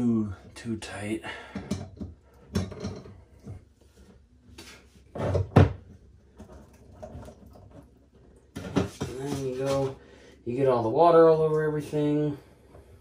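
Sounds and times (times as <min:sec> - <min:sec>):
tools clattering in cabinet: 0:01.6 - 0:03.2.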